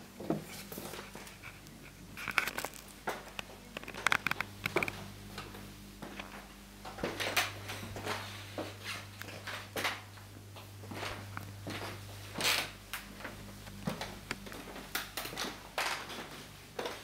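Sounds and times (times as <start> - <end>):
low steady hum: 0.0 - 17.0
camera handling clicks and rustles: 2.2 - 5.0.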